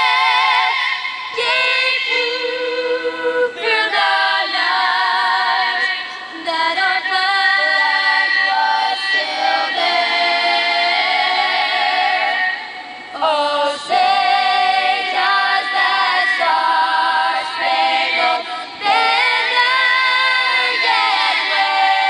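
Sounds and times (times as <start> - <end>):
girls singing a cappella: 0.0 - 22.0
singers breathing: 18.4 - 18.8.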